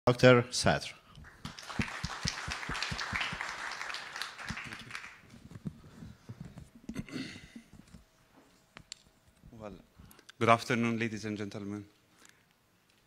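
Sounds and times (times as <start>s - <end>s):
audience applauding: 1.2s - 5.3s.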